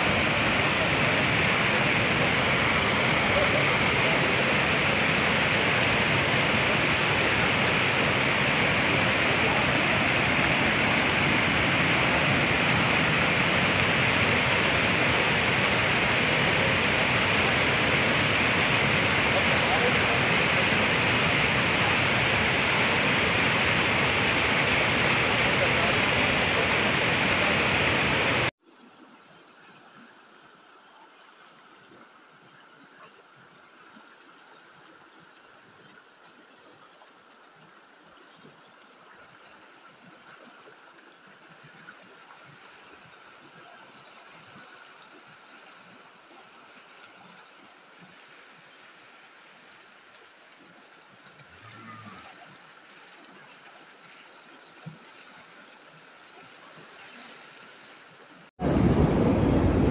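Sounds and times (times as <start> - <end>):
rushing roar of flood torrent: 0.0 - 28.5
floodwater flowing down street: 0.0 - 59.0.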